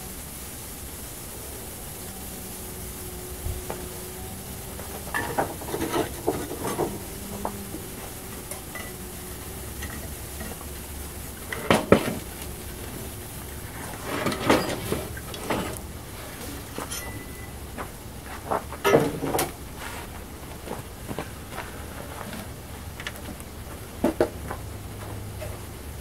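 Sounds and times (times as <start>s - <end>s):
compound sizzling on hot metal: 0.0s - 26.0s
metal scraping and clinking: 4.8s - 10.7s, 11.4s - 17.8s.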